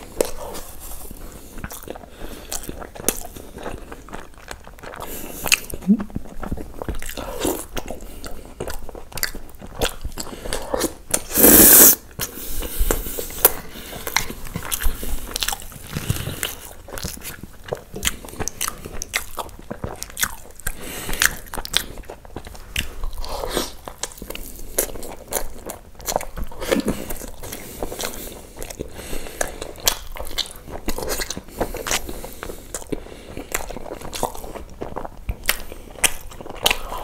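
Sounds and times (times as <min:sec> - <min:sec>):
person chewing food: 0:00.0 - 0:37.0.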